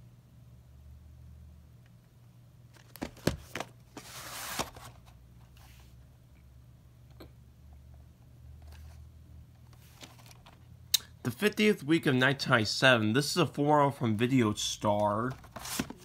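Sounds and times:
cardboard slipcase scraping: 2.9 - 5.0, 15.3 - 16.0.

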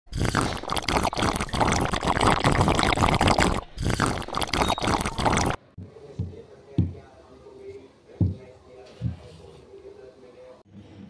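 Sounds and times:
liquid pouring into a glass: 0.2 - 5.6.

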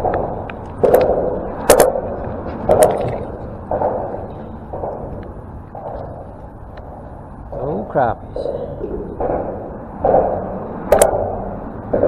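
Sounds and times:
water slapping against hull: 0.0 - 6.6.

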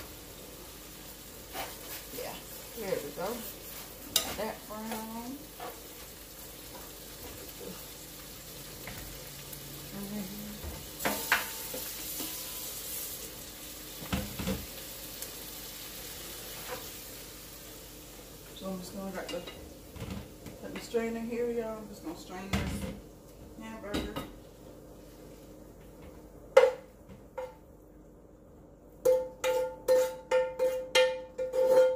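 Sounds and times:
meat sizzling in a pan: 0.0 - 22.4.

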